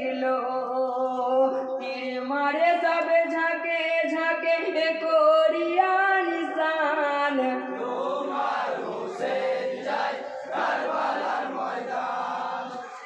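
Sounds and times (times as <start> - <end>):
men chanting in unison: 7.8 - 13.0.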